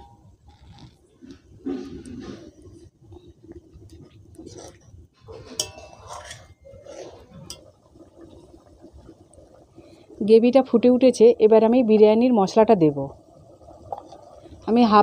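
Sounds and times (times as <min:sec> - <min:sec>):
steel spatula scraping metal pot: 0:04.4 - 0:07.7.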